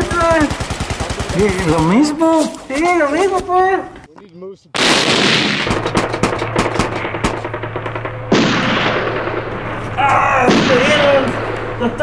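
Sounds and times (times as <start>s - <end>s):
rapid gunshots: 0.0s - 2.3s, 4.8s - 12.0s
heavy gun blasts: 4.8s - 12.0s.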